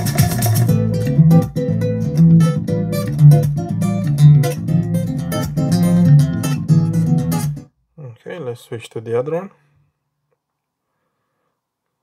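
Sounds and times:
strummed guitar music over speaker: 0.0 - 7.7.

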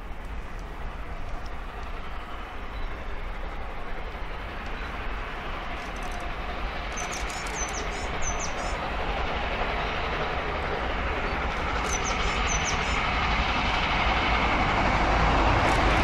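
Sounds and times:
distant steam locomotive rushing: 0.0 - 16.0
bird chirping: 6.9 - 8.8, 11.8 - 13.0.

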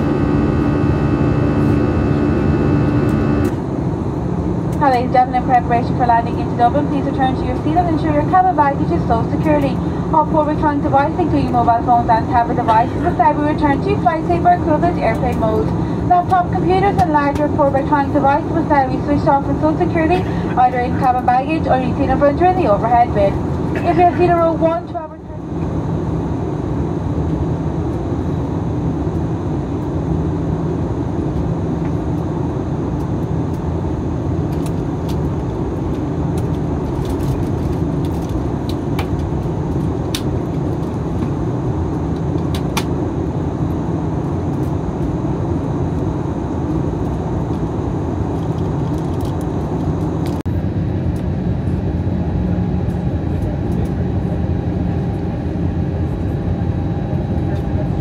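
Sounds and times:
jet engine roar and rushing air: 0.0 - 58.0.

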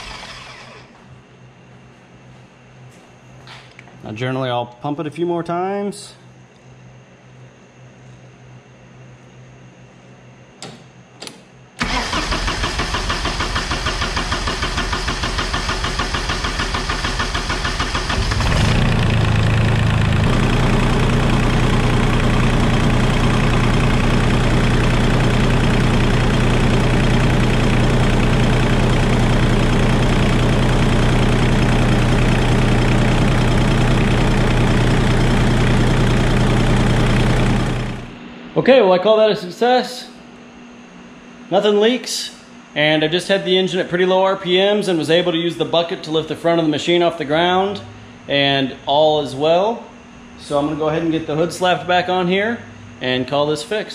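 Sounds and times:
diesel engine cranking: 0.0 - 1.0, 11.8 - 38.1
diesel engine idling: 11.8 - 38.2.

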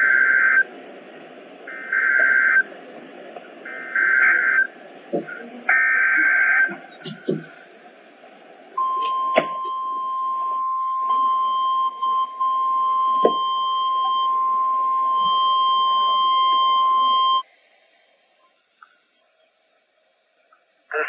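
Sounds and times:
radio static: 0.0 - 7.8
high alarm beep: 8.8 - 17.4.

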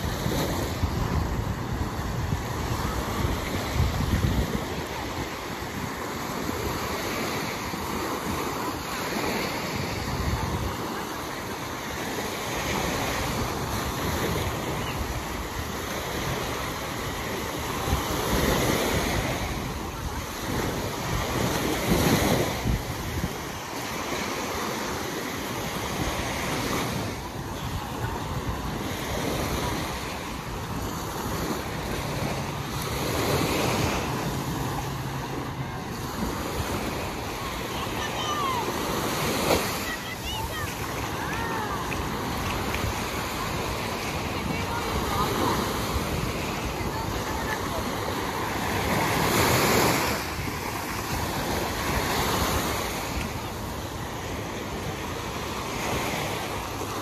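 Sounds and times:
wind buffeting microphone: 0.0 - 11.1, 12.7 - 25.0
small waves breaking on sand: 0.0 - 57.0.

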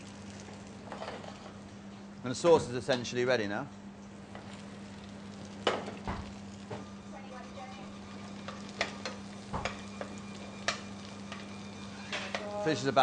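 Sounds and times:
fish sizzling in a pan: 0.0 - 1.6, 4.2 - 13.0
low hum: 3.9 - 13.0.

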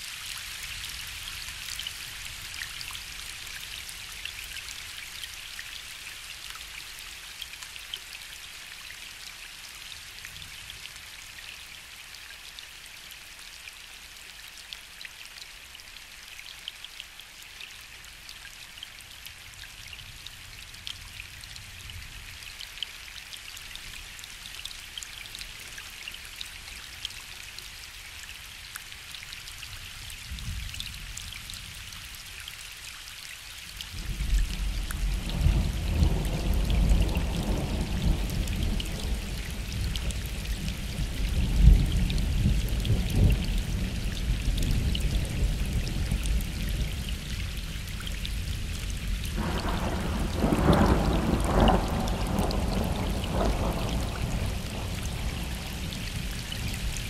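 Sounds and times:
rain falling on a lake: 0.0 - 57.0
distant thunder rumble: 49.4 - 56.0.

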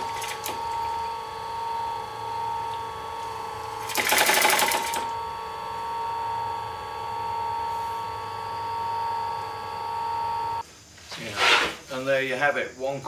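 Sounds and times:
electric motor humming: 0.0 - 10.6
sewing machine stitching: 3.7 - 5.1.

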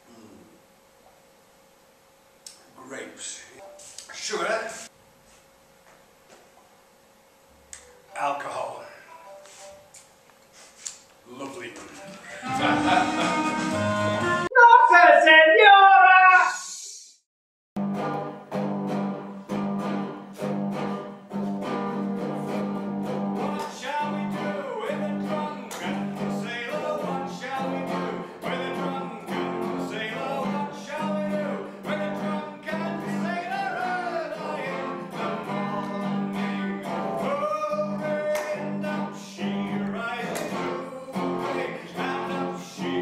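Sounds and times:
accordion: 12.0 - 14.5
electric guitar: 12.0 - 14.5, 17.8 - 43.0
live band playing: 12.0 - 14.5
person singing: 12.0 - 14.8, 23.4 - 43.0.

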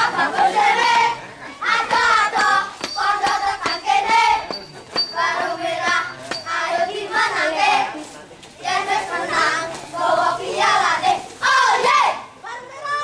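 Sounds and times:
children chanting in unison: 8.6 - 13.0.

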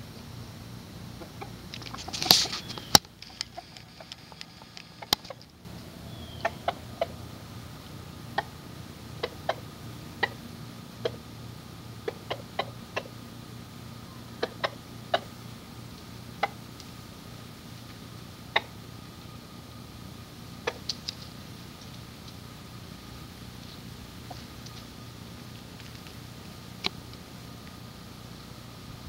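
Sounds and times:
rooster clucking: 1.1 - 16.8, 18.3 - 19.1, 20.5 - 21.2, 24.1 - 25.0.

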